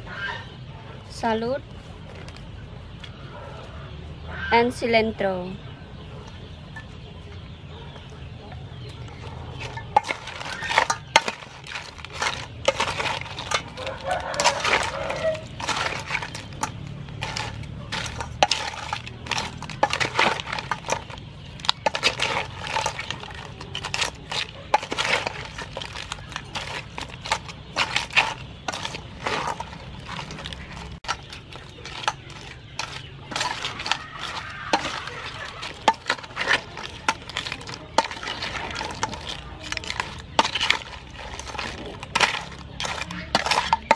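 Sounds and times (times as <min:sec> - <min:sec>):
salad clattering in metal bowl: 0:09.0 - 0:43.9.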